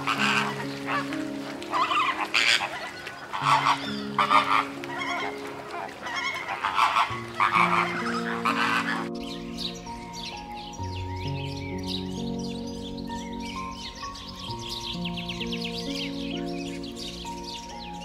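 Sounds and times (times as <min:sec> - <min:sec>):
flamingos honking: 0:00.0 - 0:11.0
soft background music: 0:00.0 - 0:18.0.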